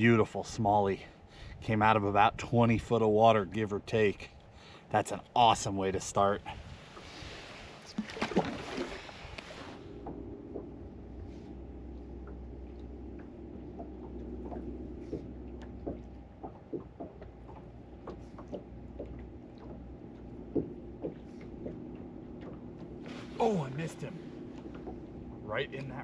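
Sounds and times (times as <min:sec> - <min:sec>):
fish splashing in water: 0:07.8 - 0:09.8
electric trolling motor humming: 0:08.6 - 0:26.0.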